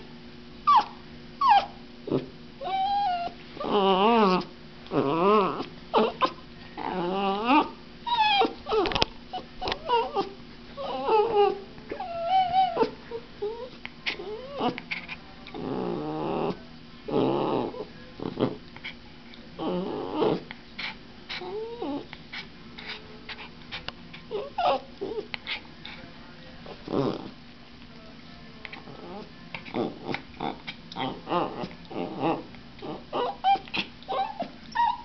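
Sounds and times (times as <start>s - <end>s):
puppy whining: 0.6s - 19.0s, 19.6s - 26.0s, 26.6s - 27.4s, 28.7s - 35.0s
low rough puppy sounds: 0.6s - 27.9s, 28.6s - 35.0s.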